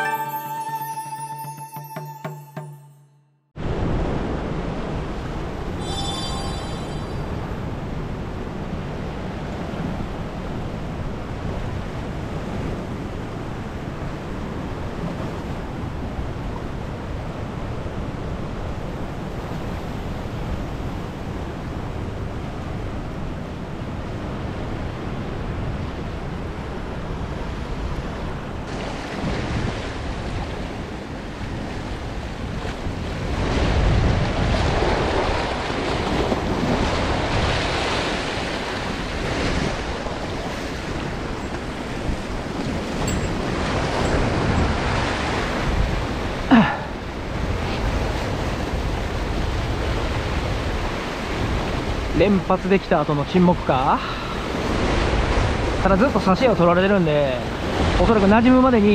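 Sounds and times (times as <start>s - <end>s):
wind buffeting microphone: 7.6s - 46.5s.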